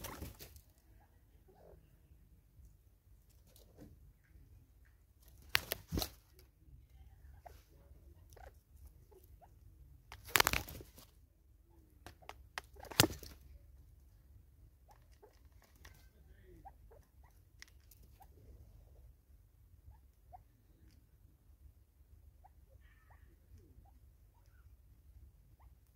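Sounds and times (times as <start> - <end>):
bird pecking and scratching: 0.0 - 1.0, 2.6 - 11.2, 11.8 - 18.4.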